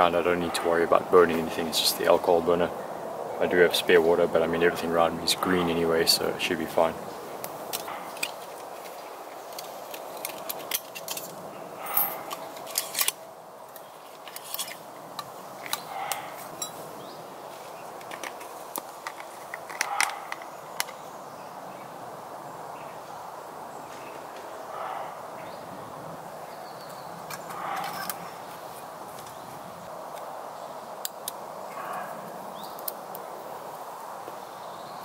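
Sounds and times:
small metal clicks and knocks: 9.4 - 16.8, 18.0 - 21.0, 27.3 - 28.2.

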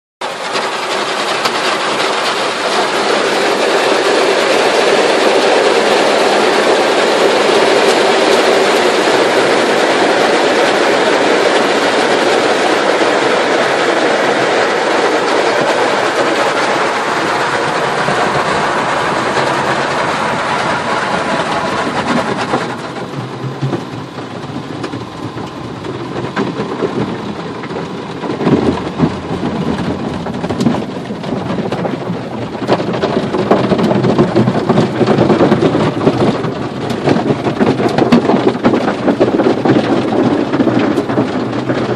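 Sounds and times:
car wash rumble and thuds: 0.2 - 41.9.

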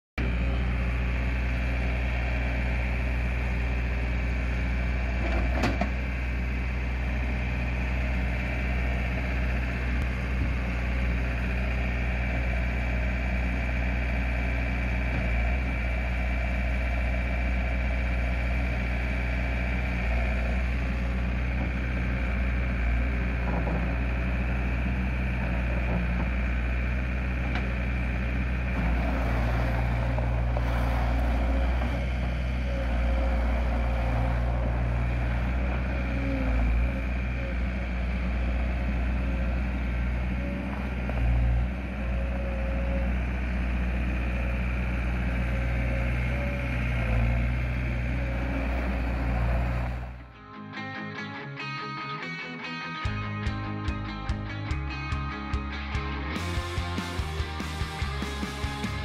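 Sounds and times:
diesel engine running: 0.2 - 50.4, 53.0 - 59.0
high whine: 53.0 - 59.0.

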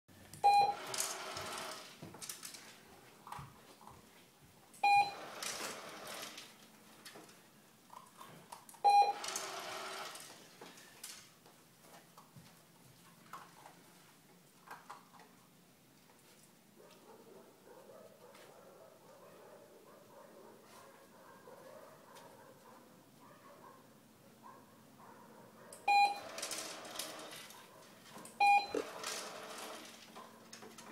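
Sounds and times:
short beeps: 0.4 - 0.8, 4.8 - 5.2, 8.8 - 9.2, 25.9 - 26.3, 28.4 - 28.8
treat dispenser running: 0.6 - 2.1, 5.0 - 6.6, 9.0 - 10.4, 26.0 - 27.5, 28.6 - 30.9.

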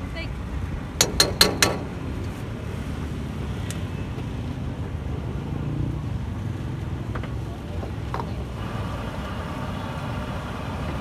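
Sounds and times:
low rumble of street traffic: 0.0 - 11.0.

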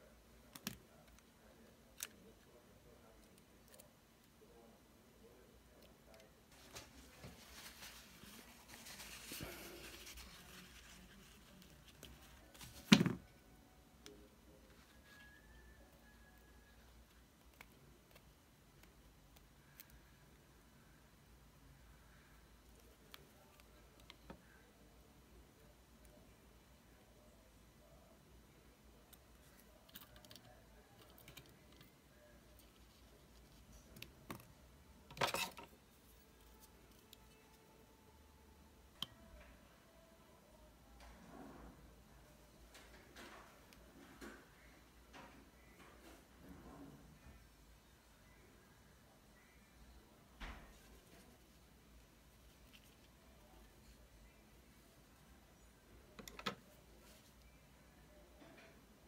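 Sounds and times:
paper towel rustling: 6.5 - 11.6
handling sounds on desk mat: 6.5 - 13.4.

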